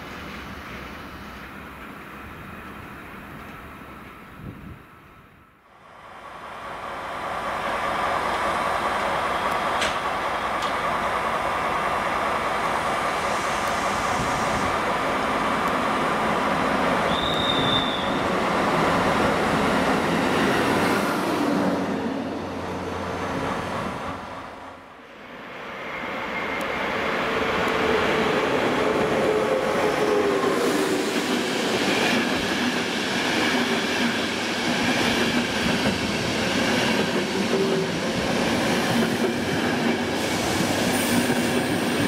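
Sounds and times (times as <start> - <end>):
electric locomotive approaching: 0.0 - 42.0
train wheels rumbling: 6.0 - 25.0, 25.8 - 42.0
high squeal: 17.0 - 18.3.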